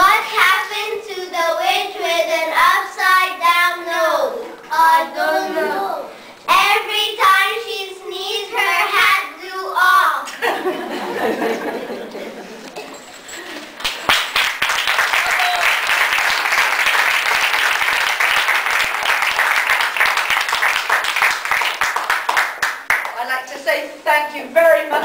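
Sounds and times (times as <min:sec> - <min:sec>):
voices: 0:00.0 - 0:10.3
audience applauding: 0:13.7 - 0:23.2.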